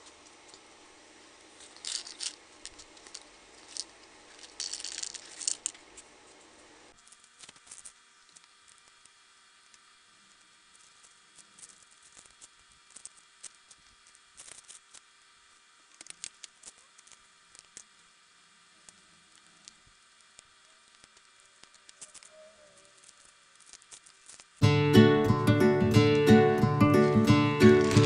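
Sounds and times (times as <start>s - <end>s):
plastic cup clicks and rustles: 1.6s - 5.8s, 27.8s - 28.0s
acoustic guitar music: 24.6s - 28.0s.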